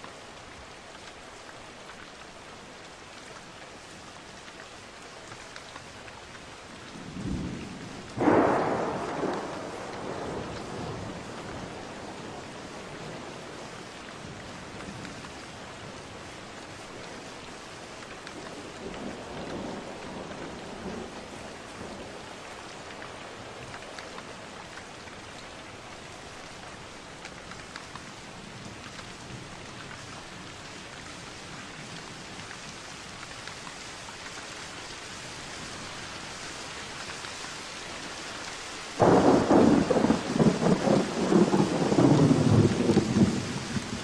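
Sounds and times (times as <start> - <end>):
rain falling into puddle: 0.0 - 44.0
distant thunder rumble: 7.1 - 12.4, 39.0 - 44.0.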